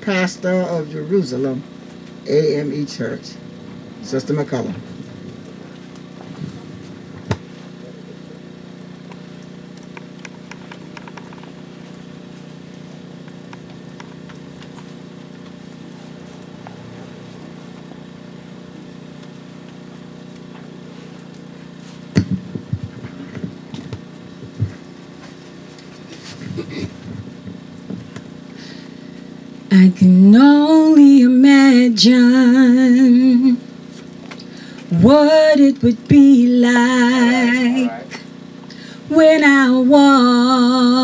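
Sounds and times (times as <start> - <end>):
steady low hum: 0.0 - 41.0
microphone handling knocks and thumps: 4.7 - 7.6, 22.1 - 25.4, 26.1 - 28.3.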